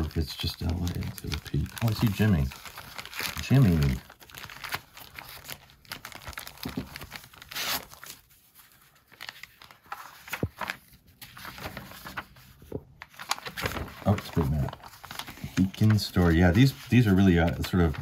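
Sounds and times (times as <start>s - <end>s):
paper and plastic sleeve rustling: 0.0s - 18.0s.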